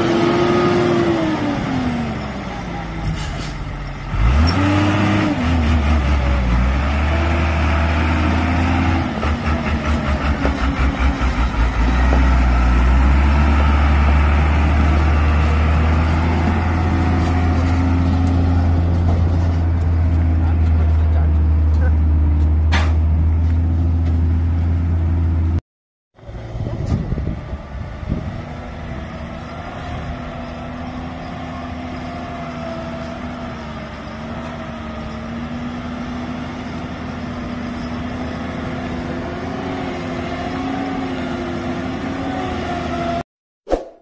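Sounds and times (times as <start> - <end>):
truck diesel engine: 0.0 - 25.6, 26.2 - 43.2.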